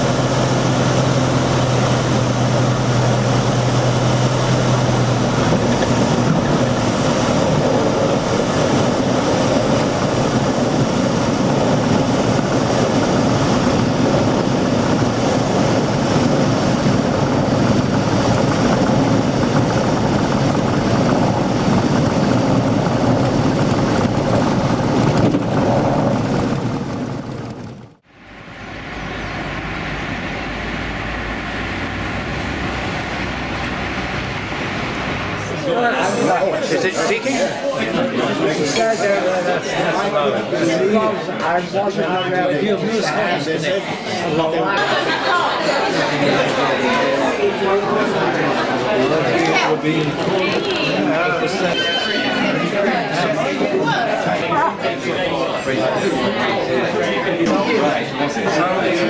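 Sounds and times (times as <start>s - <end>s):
propeller aircraft engine: 0.0s - 37.2s
rushing air: 0.0s - 37.6s.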